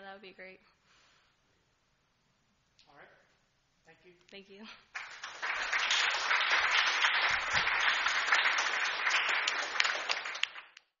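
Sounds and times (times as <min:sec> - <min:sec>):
audience applauding: 0:04.9 - 0:11.0.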